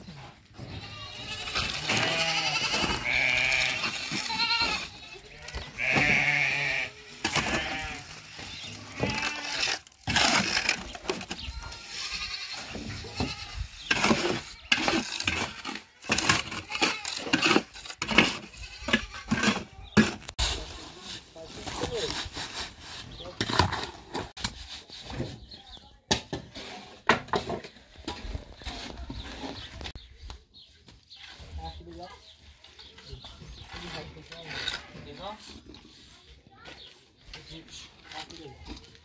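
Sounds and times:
goats bleating: 0.6 - 9.7, 11.4 - 13.8.

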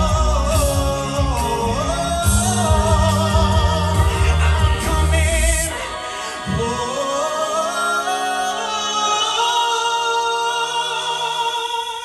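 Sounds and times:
steady bass: 0.0 - 6.0.

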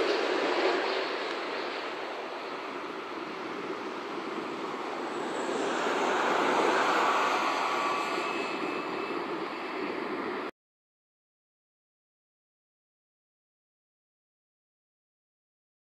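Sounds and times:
faint high whine: 0.0 - 10.5
jet engines rushing: 0.0 - 10.5.

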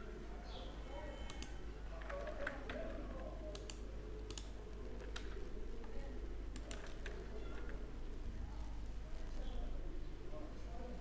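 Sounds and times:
mouse and keyboard clicks: 3.5 - 5.4, 6.6 - 7.8.

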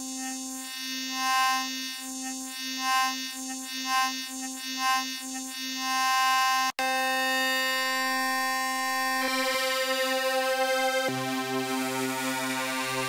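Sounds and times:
synth drone: 6.9 - 13.0.

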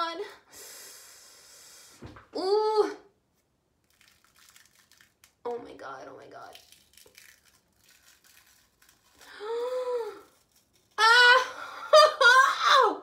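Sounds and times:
woman squealing cries: 11.0 - 13.0.

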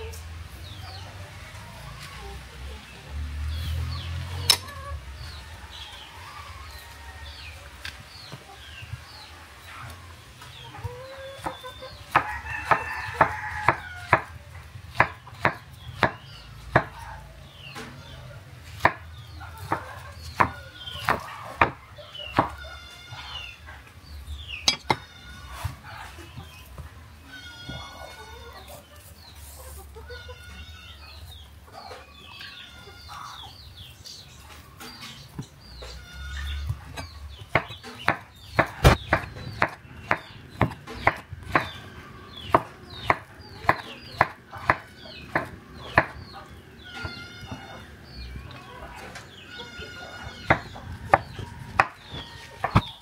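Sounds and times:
birds clucking and calling: 0.0 - 53.0.

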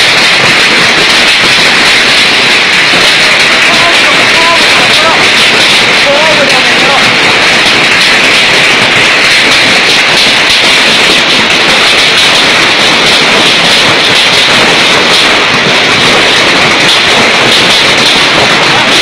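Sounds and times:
heavy hail pelting down: 0.0 - 19.0.

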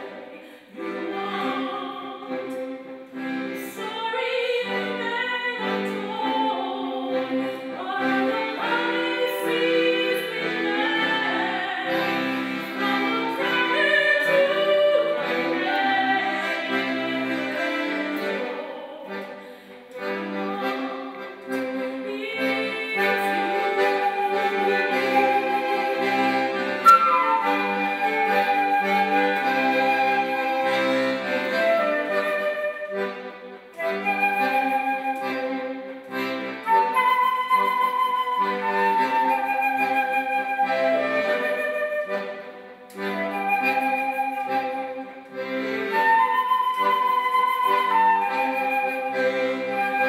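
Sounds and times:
violin: 0.0 - 50.0
flute player breaths: 19.4 - 19.9
flute melody: 22.2 - 50.0.

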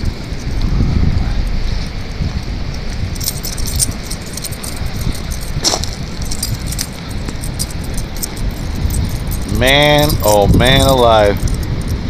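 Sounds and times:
wind rumbling on microphone: 0.0 - 12.0
metallic jingling and clicking: 2.9 - 12.0
footsteps on gravel: 4.0 - 9.6.

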